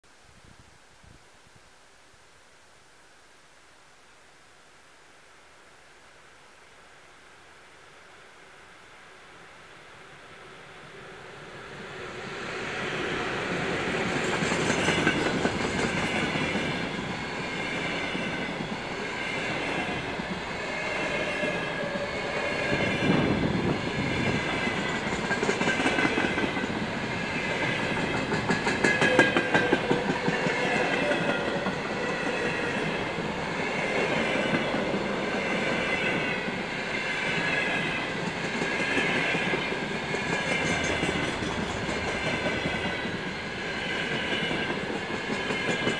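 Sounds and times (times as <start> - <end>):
rumble of train wheels: 10.4 - 45.9
wheels clicking over rail joints: 27.8 - 31.8.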